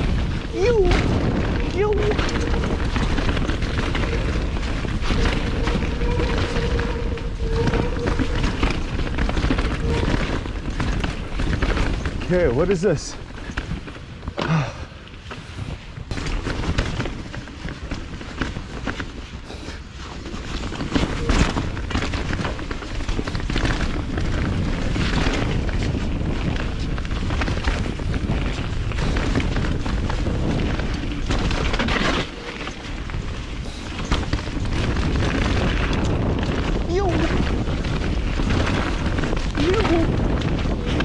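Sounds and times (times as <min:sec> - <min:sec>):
bike clunks and rattles: 0:00.0 - 0:41.0
tyres on dirt: 0:00.0 - 0:41.0
wind rumble on microphone: 0:00.0 - 0:41.0.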